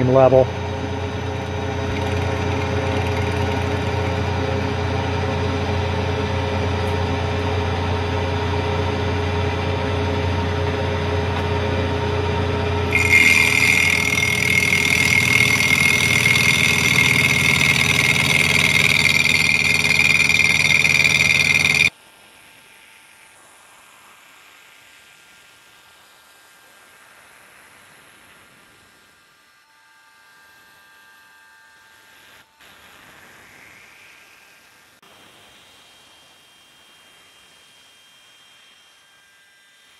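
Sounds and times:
high-pitched whine: 0:00.0 - 0:21.9
milling machine cutting metal: 0:00.4 - 0:04.8, 0:12.8 - 0:21.9.

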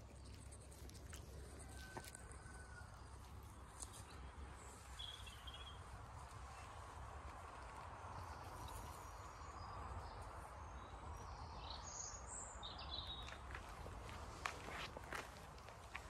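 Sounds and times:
footsteps on gravel: 0:13.2 - 0:16.0.

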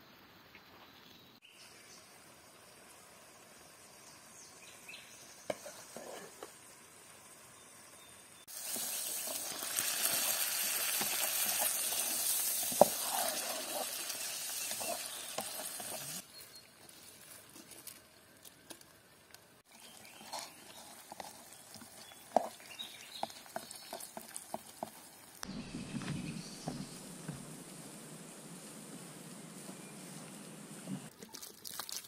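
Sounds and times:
wooden spatula scraping pot: 0:05.5 - 0:06.5, 0:08.8 - 0:16.2, 0:19.9 - 0:25.0
meat and onions sizzling: 0:05.5 - 0:16.4, 0:20.5 - 0:25.4.

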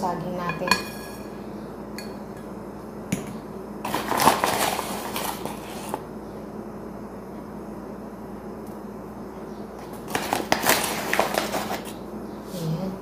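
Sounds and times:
paper bag rustling: 0:03.8 - 0:06.0, 0:10.0 - 0:12.0.

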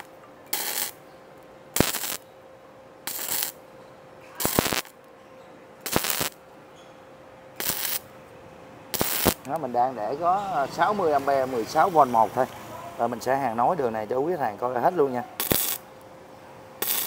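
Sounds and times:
sharp welder click: 0:00.0 - 0:01.0, 0:01.8 - 0:02.2, 0:03.1 - 0:03.6, 0:04.4 - 0:05.0, 0:05.8 - 0:06.4, 0:07.6 - 0:08.1, 0:09.0 - 0:09.6, 0:15.4 - 0:15.8, 0:16.8 - 0:17.0
welding arc bursts: 0:00.0 - 0:01.0, 0:01.8 - 0:02.2, 0:03.1 - 0:03.6, 0:04.4 - 0:05.0, 0:05.8 - 0:06.4, 0:07.6 - 0:08.1, 0:08.9 - 0:09.5, 0:15.4 - 0:15.8, 0:16.8 - 0:17.0
faint steady hum: 0:00.0 - 0:17.0.

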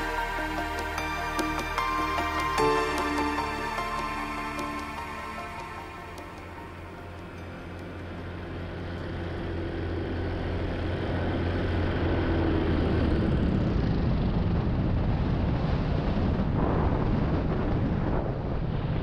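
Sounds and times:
paramotor engine drone: 0:00.0 - 0:19.0
wind rushing over microphone: 0:12.0 - 0:19.0.

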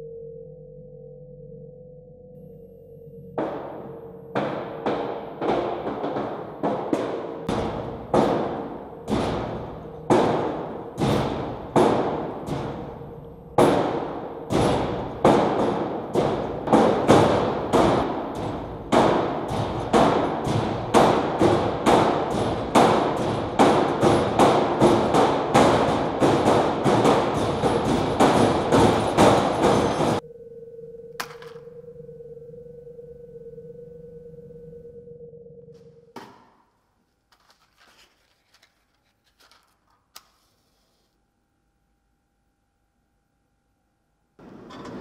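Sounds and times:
heavy drum-like hits: 0:04.4 - 0:30.2.

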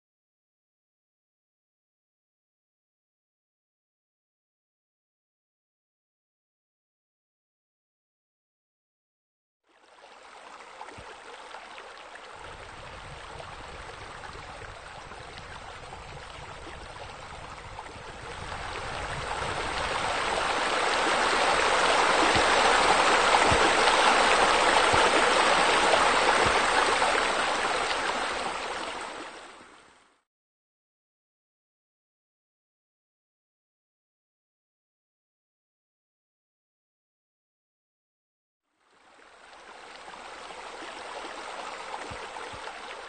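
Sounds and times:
water falling and splashing: 0:12.3 - 0:29.3.

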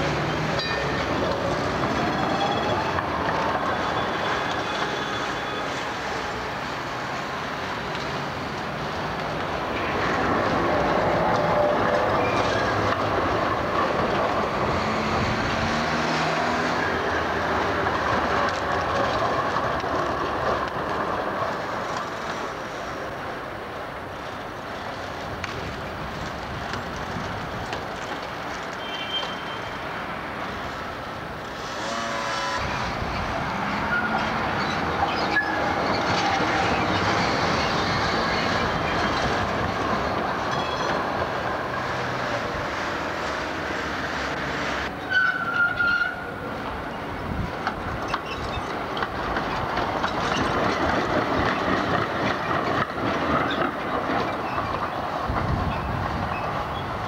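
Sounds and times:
tram wheels rumbling on rails: 0:00.0 - 0:57.0
wheel squeal: 0:11.5 - 0:13.0, 0:28.7 - 0:29.8, 0:31.6 - 0:39.4, 0:40.5 - 0:41.0, 0:45.0 - 0:46.3, 0:48.1 - 0:48.7.

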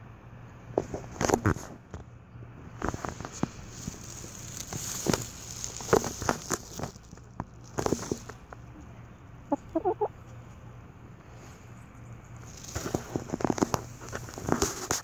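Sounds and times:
hens clucking softly: 0:08.0 - 0:10.5.

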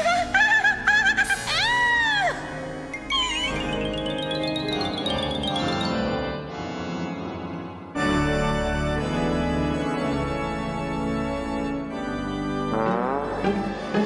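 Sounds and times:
organ playing sustained chords: 0:02.6 - 0:12.7.

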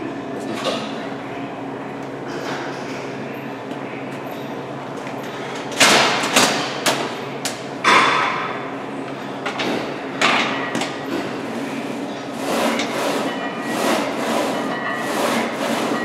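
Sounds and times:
leg press sled clanking: 0:09.6 - 0:16.0.

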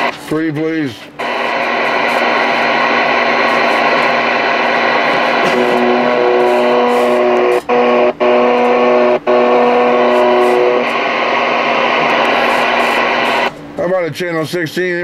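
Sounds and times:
radio receiver static: 0:00.0 - 0:13.6
steady buzzing tone: 0:01.1 - 0:13.6.

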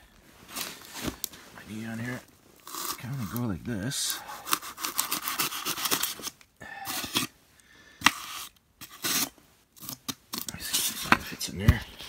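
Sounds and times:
blade scraping through foam: 0:04.4 - 0:06.3, 0:08.1 - 0:10.0.

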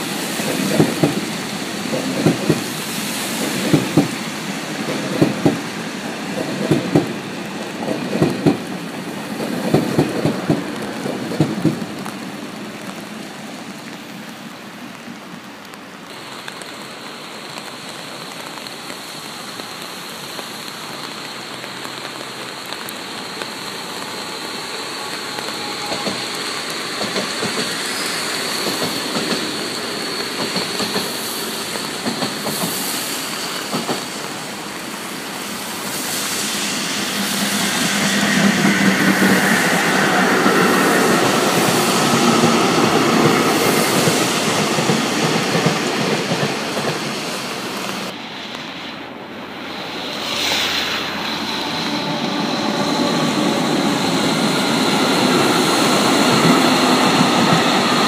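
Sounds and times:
freight train clattering: 0:00.0 - 0:12.0, 0:25.6 - 0:32.9, 0:36.6 - 0:48.2
train wheels clicking over rail joints: 0:00.1 - 0:07.2, 0:07.8 - 0:12.1, 0:25.8 - 0:34.5, 0:36.3 - 0:48.1.

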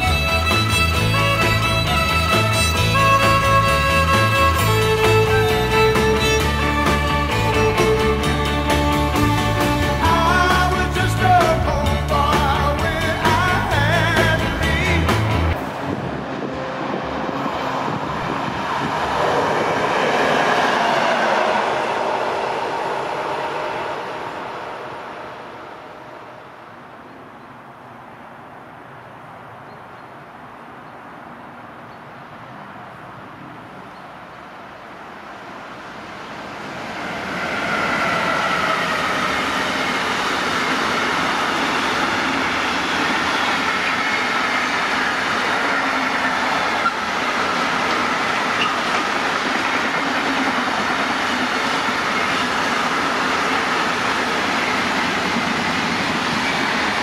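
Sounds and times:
wagons running on rails: 0:00.0 - 0:15.9, 0:36.0 - 0:57.0
freight train passing: 0:00.0 - 0:57.0
high squealing tones: 0:48.4 - 0:49.0.

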